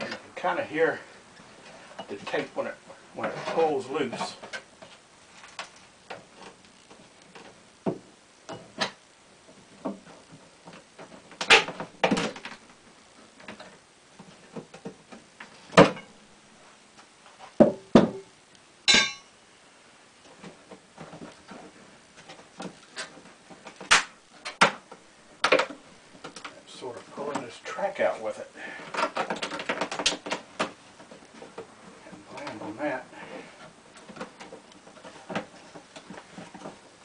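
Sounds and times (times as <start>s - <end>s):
crackling tear: 20.1s - 37.0s
adhesive tape popping loose: 23.8s - 24.7s.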